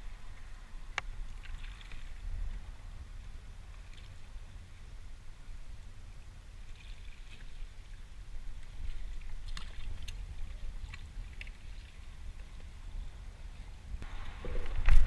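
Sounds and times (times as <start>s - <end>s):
water lapping against kayak hull: 0.1s - 4.8s, 6.5s - 15.0s
steady low rumble: 12.0s - 15.0s.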